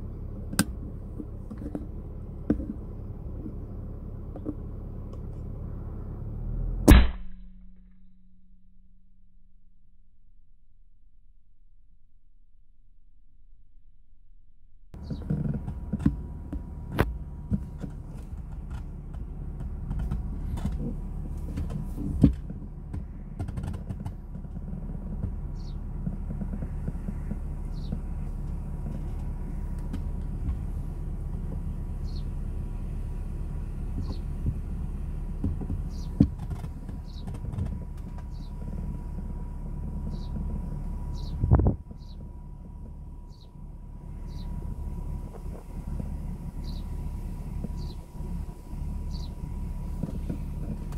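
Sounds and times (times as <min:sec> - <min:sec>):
low rumble: 0:00.0 - 0:50.9
handling knocks and clicks: 0:00.5 - 0:03.6, 0:15.0 - 0:31.7, 0:35.3 - 0:38.8
bird chirping: 0:25.5 - 0:25.9, 0:32.0 - 0:32.4, 0:35.8 - 0:36.2, 0:37.0 - 0:37.4, 0:38.2 - 0:38.6, 0:40.0 - 0:40.4, 0:41.0 - 0:42.3, 0:43.2 - 0:43.6, 0:44.2 - 0:44.6, 0:46.6 - 0:47.0, 0:47.7 - 0:48.1, 0:49.0 - 0:49.4.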